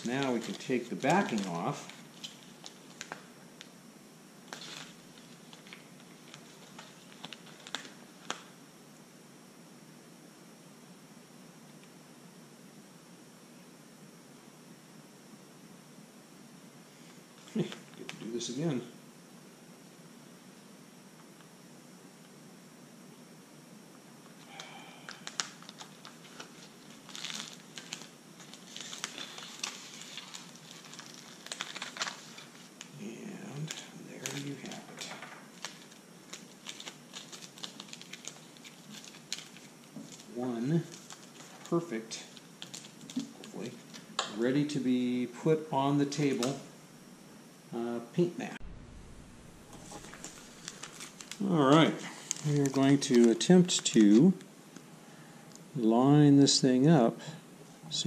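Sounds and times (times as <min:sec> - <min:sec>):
paper rustle: 0:00.0 - 0:03.3, 0:04.5 - 0:08.5, 0:24.5 - 0:32.9, 0:33.5 - 0:44.1, 0:49.7 - 0:54.4.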